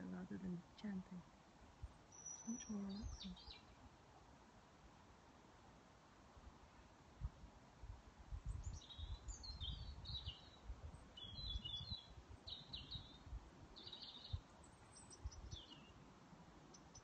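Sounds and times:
blackbird sharp ticking calls: 0:02.1 - 0:03.7, 0:08.6 - 0:13.2, 0:13.8 - 0:16.0
blackbirds chattering calls: 0:02.1 - 0:03.7.

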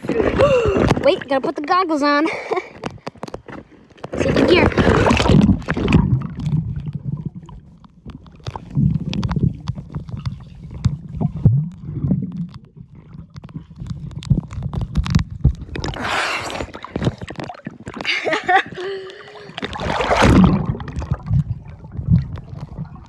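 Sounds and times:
muffled underwater rumbling: 0:03.7 - 0:23.0
water splashing: 0:04.0 - 0:23.0.

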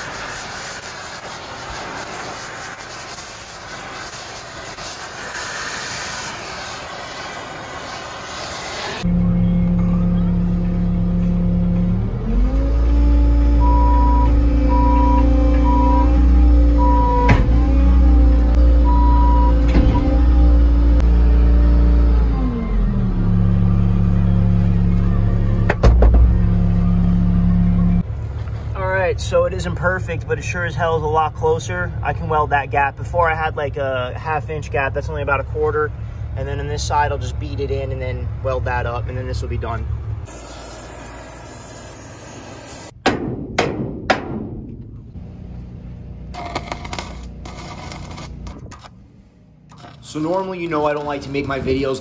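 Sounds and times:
gas torch hissing: 0:00.0 - 0:09.1, 0:40.2 - 0:43.0
skid steer engine running: 0:08.7 - 0:28.7
hammer striking hot steel: 0:40.3 - 0:45.0
sharp knocks: 0:43.0 - 0:45.0.

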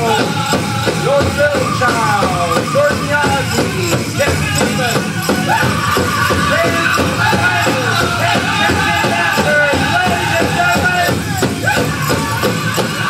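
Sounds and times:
steady drumbeat: 0:00.0 - 0:13.0
group singing in high voices: 0:05.4 - 0:11.0.

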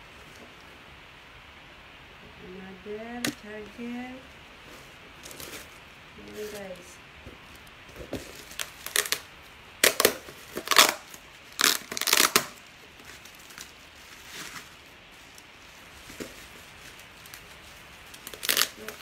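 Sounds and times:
bubble wrap crinkling: 0:03.1 - 0:19.0
faint handling noises: 0:03.2 - 0:09.2.

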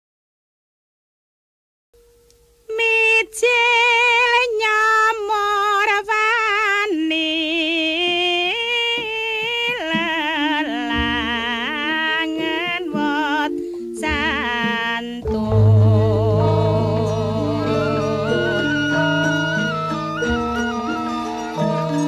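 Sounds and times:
woman singing with vibrato: 0:02.7 - 0:22.0
low held instrumental notes: 0:10.7 - 0:22.0.

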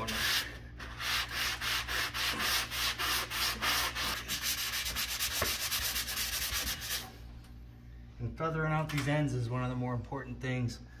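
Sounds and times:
sanding sponge scrubbing: 0:00.0 - 0:07.1.

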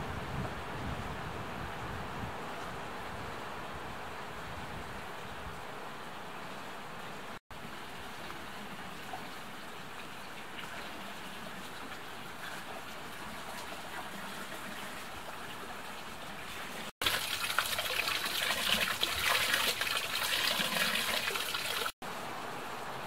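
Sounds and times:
water splashing into pool: 0:10.5 - 0:22.0.

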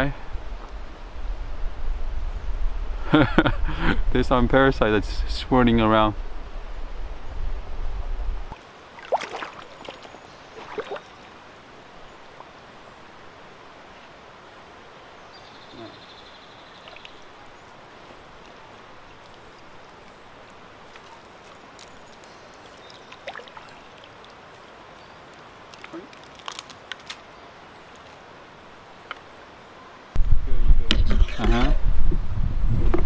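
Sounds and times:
sharp water splashes: 0:08.5 - 0:11.2, 0:16.8 - 0:27.2
river water flowing: 0:08.5 - 0:30.2.

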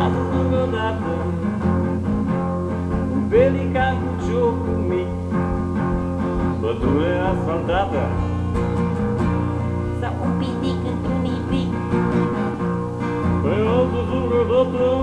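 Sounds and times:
person singing: 0:00.0 - 0:01.4, 0:10.0 - 0:11.8, 0:13.4 - 0:15.0
acoustic guitar: 0:00.0 - 0:15.0.

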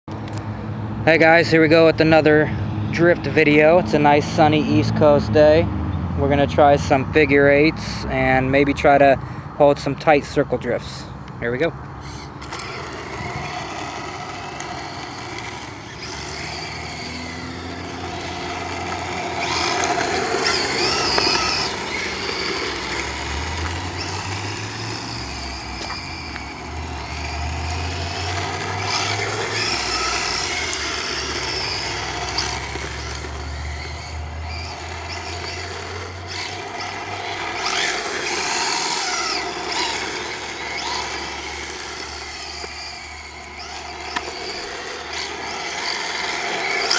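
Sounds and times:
tyre scrub on asphalt: 0:11.5 - 0:46.9
electric motor whining: 0:11.9 - 0:46.9.

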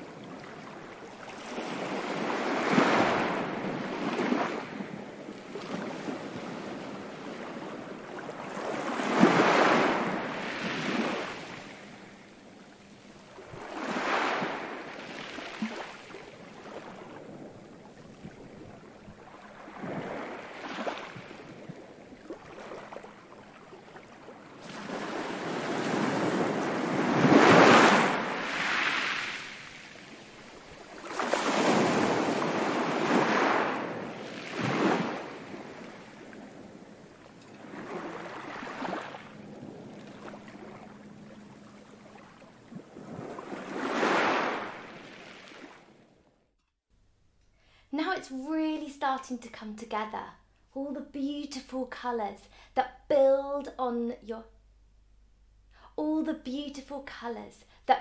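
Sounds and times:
ocean waves washing in: 0:00.0 - 0:46.2.

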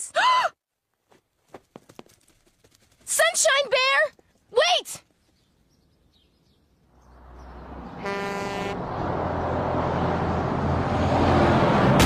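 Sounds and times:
large vehicle engine rumbling: 0:07.0 - 0:12.0
vehicle horn blast: 0:08.0 - 0:08.8.

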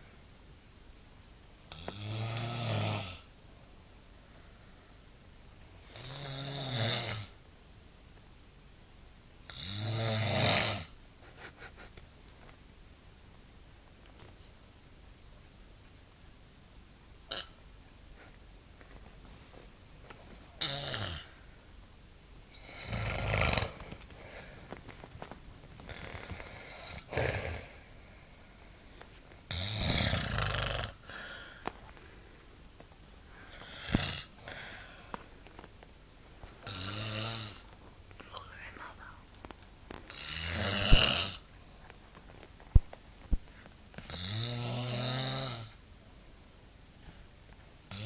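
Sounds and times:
man snoring: 0:01.7 - 0:03.3, 0:05.9 - 0:07.4, 0:09.5 - 0:10.9, 0:20.6 - 0:21.3, 0:22.6 - 0:24.5, 0:25.9 - 0:27.8, 0:29.5 - 0:31.6, 0:33.5 - 0:34.9, 0:36.6 - 0:37.6, 0:40.1 - 0:41.4, 0:44.1 - 0:45.8.

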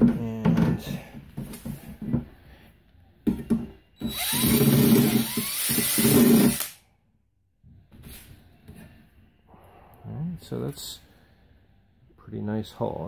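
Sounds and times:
cordless drill spinning in steel: 0:04.0 - 0:06.7.

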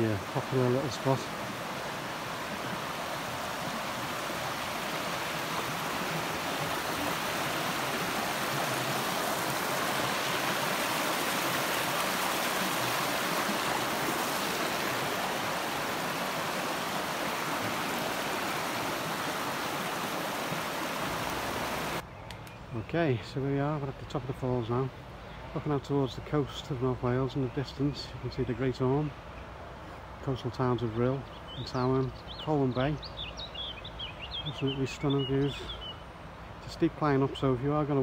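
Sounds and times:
river rushing over rocks: 0:00.0 - 0:22.0.

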